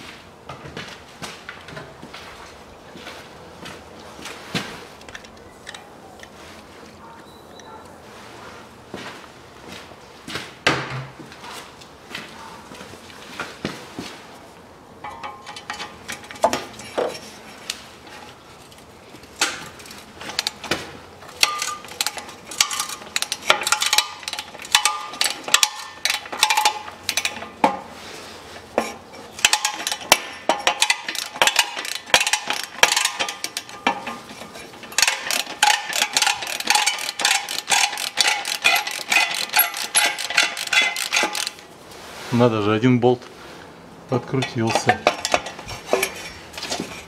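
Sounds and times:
ratchet wrench clicking: 21.4 - 27.4, 29.4 - 33.8, 34.9 - 41.6.

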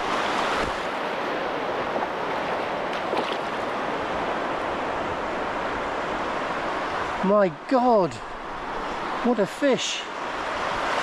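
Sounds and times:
faint water splashes: 0.0 - 4.8
shallow surf washing: 0.0 - 11.0.

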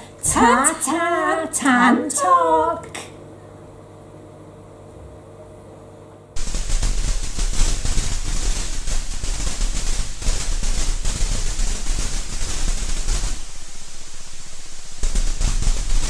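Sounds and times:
static-like noise rush: 6.4 - 16.0.

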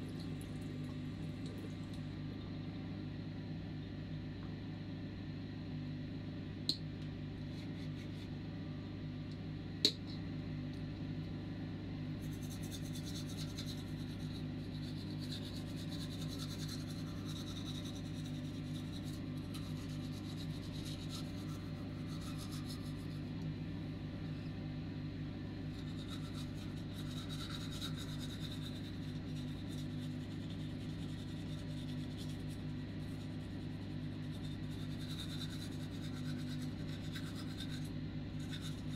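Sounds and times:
steady low hum: 0.0 - 38.9
toothbrush scrubbing teeth: 7.5 - 8.3, 12.2 - 23.3, 25.7 - 38.9.

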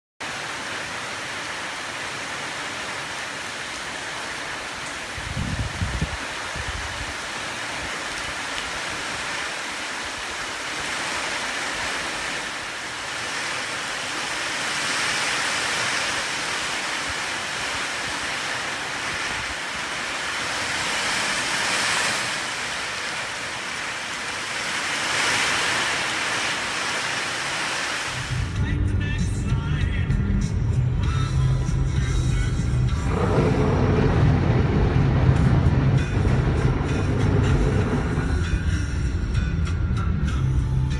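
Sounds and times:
heavy rain on street and rooftops: 0.2 - 40.9
gusty wind: 4.8 - 28.6, 32.9 - 39.6.

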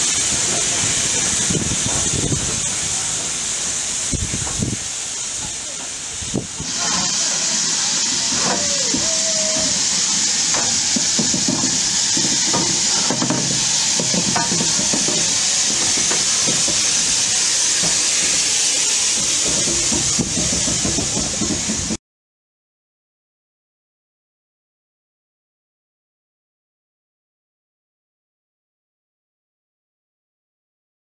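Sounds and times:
locomotive clanks and knocks: 0.0 - 22.0
steam hissing from locomotive: 0.0 - 22.0.

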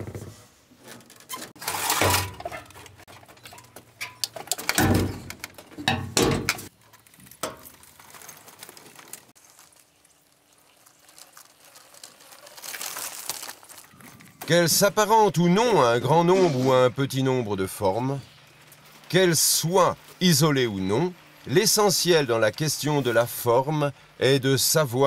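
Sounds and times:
metal junk clattering in skip: 0.9 - 7.8.

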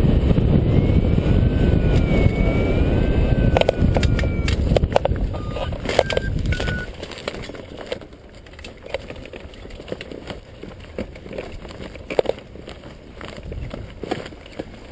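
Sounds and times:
wind rumble on microphone: 0.0 - 14.9
glider frame clicks and rattles: 3.6 - 14.9.

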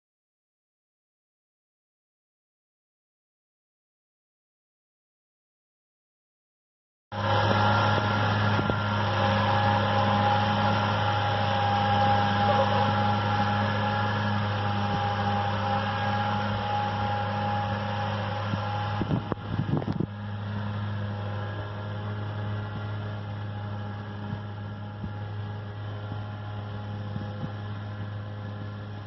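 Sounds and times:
mower whine: 7.1 - 29.0
tractor diesel engine under load: 7.1 - 29.0.

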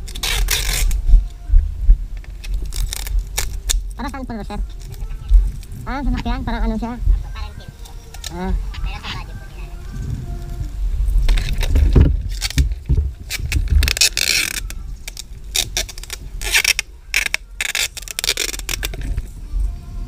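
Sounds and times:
tape ripping off roll: 0.0 - 1.1, 2.2 - 4.0, 11.2 - 19.4
handling rustle and bumps: 0.0 - 19.8.

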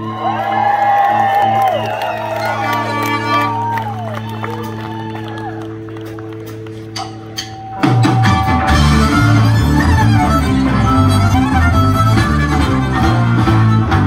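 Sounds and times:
bass line: 0.0 - 14.0
country-rock band with fiddle: 0.0 - 14.0.

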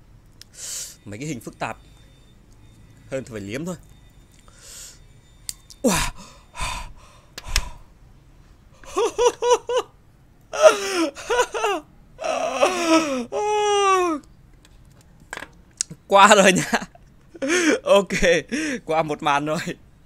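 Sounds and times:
man's sharp breaths: 0.5 - 1.0, 4.5 - 5.0, 5.9 - 8.0, 18.5 - 18.9
man's falling cries: 5.8 - 6.9, 10.5 - 14.2
man yelping laugh-like: 10.6 - 14.2.

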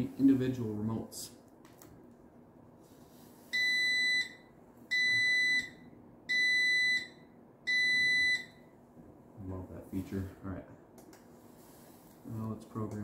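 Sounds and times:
garage door opener high beeps: 3.6 - 8.6.

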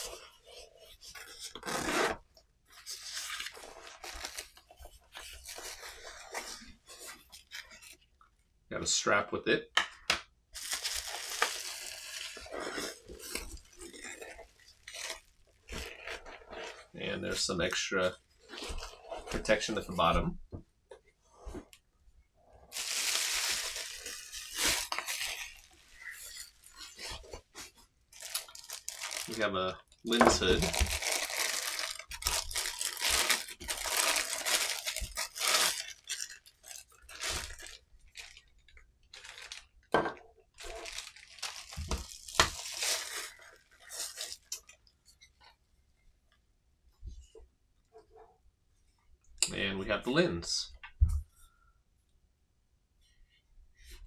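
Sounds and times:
velcro ripping open: 1.5 - 2.2, 30.5 - 38.4
nylon fabric rubbing: 1.6 - 2.2
plastic packaging crinkling: 2.7 - 8.0, 10.6 - 16.8, 22.7 - 44.8.

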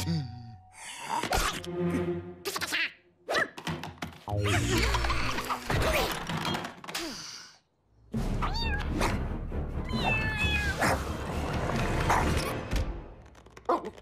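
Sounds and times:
background music: 0.0 - 6.3, 7.9 - 14.0
cartoon kitten meowing: 9.8 - 10.8.

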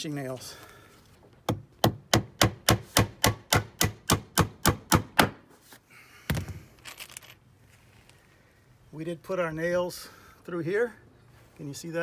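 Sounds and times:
hammer driving nail into wood: 1.5 - 5.4.

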